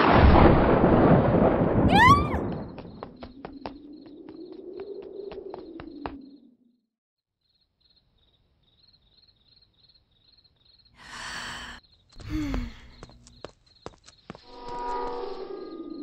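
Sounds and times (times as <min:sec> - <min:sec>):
crickets chirping: 0:02.7 - 0:06.8, 0:07.4 - 0:16.0
person sighing: 0:11.0 - 0:13.0.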